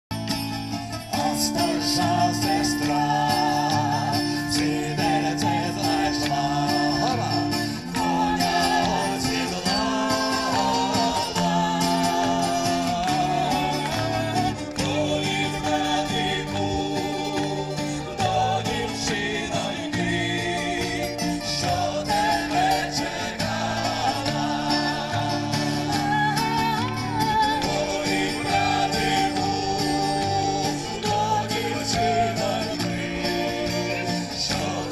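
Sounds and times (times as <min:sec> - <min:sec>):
acoustic guitars strumming: 0:00.1 - 0:34.9
person singing: 0:01.1 - 0:34.9.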